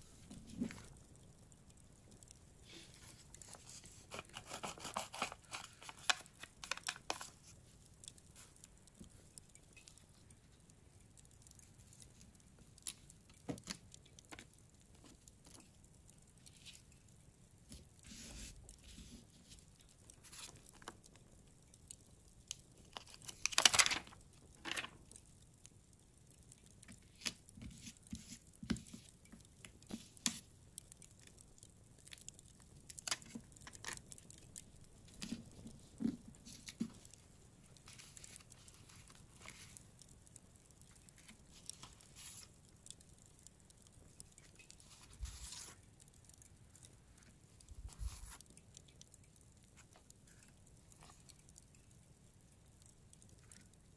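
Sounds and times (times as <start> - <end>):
paper taps and rustles: 3.0 - 7.5, 12.8 - 15.6, 23.0 - 25.0, 26.9 - 30.4, 35.1 - 37.1
paper ripping: 3.4 - 7.3, 23.2 - 24.1, 44.9 - 45.8.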